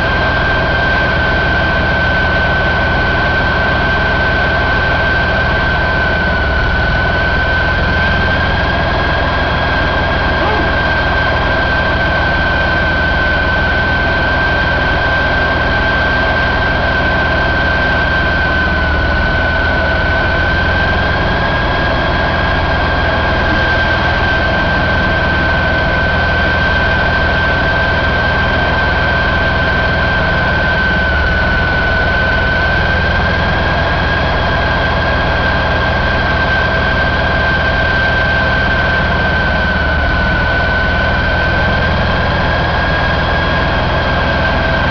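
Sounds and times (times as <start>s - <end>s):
diesel engine running: 0.0s - 44.9s
high-pitched whine: 0.0s - 44.9s.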